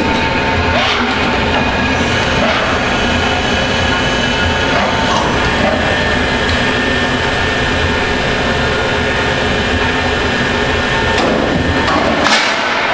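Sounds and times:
lathe whirring with high whine: 0:00.0 - 0:12.9.

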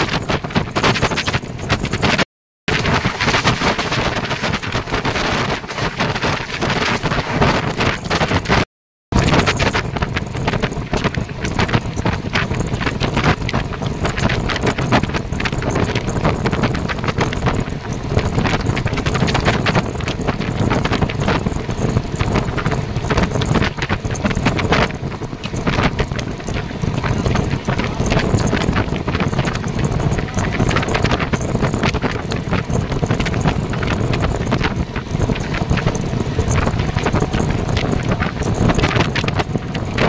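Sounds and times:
train rumbling: 0:00.0 - 0:40.0
wind buffeting microphone: 0:00.0 - 0:40.0
train wheels rattling: 0:09.2 - 0:40.0.

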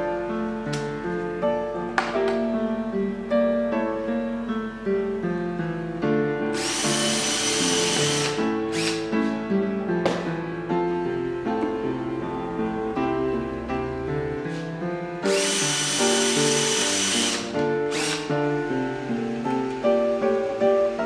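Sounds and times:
background music: 0:00.0 - 0:21.0
cordless drill driving screw: 0:06.6 - 0:09.1, 0:15.3 - 0:18.3.

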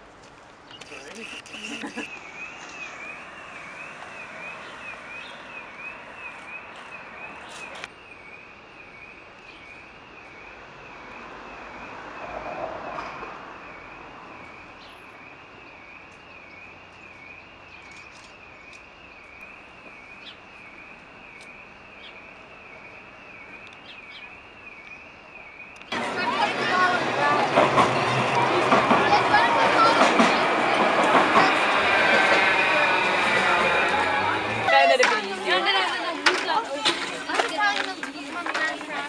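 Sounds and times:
street background noise: 0:00.0 - 0:39.0
vehicle passing: 0:25.9 - 0:39.0.

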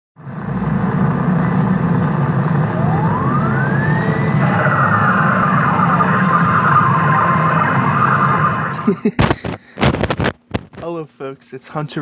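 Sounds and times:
steady noisy rumble: 0:00.2 - 0:12.0
siren rising and falling: 0:01.6 - 0:08.9.

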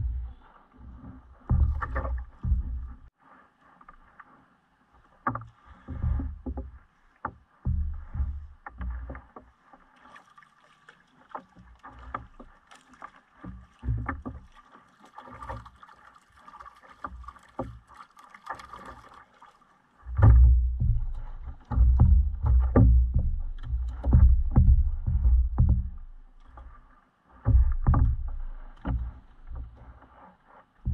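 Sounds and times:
faint water noise: 0:00.0 - 0:30.9
loud low rumble: 0:20.1 - 0:26.2
knocks on plastic kayak: 0:20.2 - 0:26.2.

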